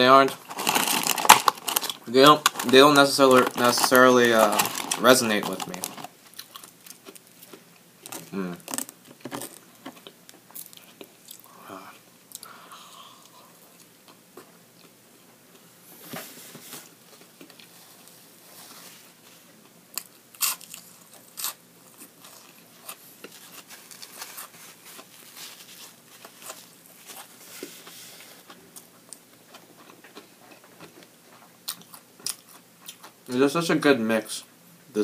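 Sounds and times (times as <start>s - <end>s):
crunching fried onion rings: 0.3s - 11.6s, 19.9s - 33.2s.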